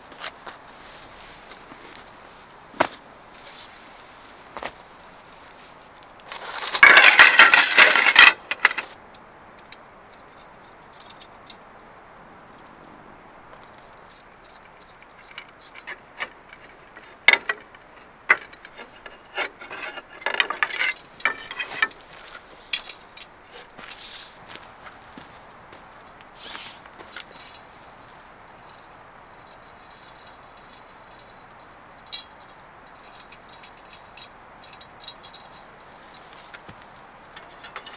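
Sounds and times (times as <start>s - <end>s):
metal rods clicking and clinking: 6.3s - 9.0s, 9.6s - 11.6s, 14.1s - 23.4s, 27.1s - 37.9s
metallic jangling rattle: 6.4s - 9.0s, 9.6s - 11.6s, 14.1s - 23.4s, 27.1s - 37.9s.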